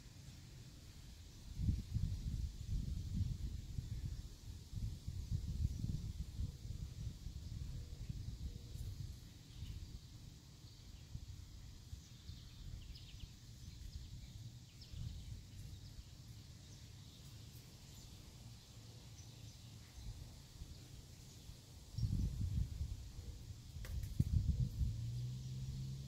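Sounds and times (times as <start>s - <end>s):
low steady rumble: 0.1s - 26.0s
faint bird chirps: 5.2s - 23.5s.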